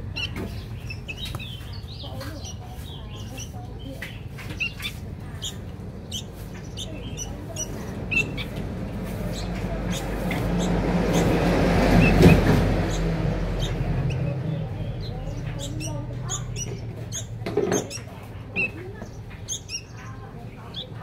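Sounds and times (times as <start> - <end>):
chicks begging chirps: 0.0 - 21.0
motor vehicle passing: 0.0 - 21.0.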